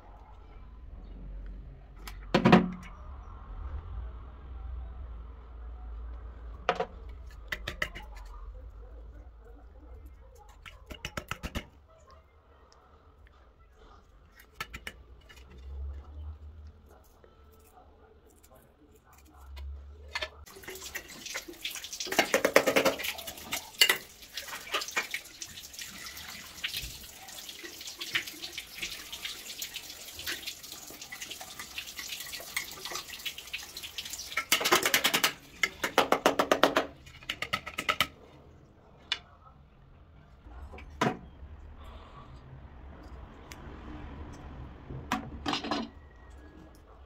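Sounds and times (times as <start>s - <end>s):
water running into toilet cistern: 20.5s - 38.1s.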